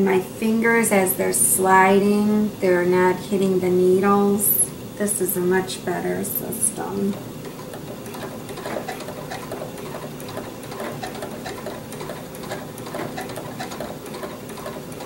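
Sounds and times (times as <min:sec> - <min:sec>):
sewing machine running: 0:06.2 - 0:15.0.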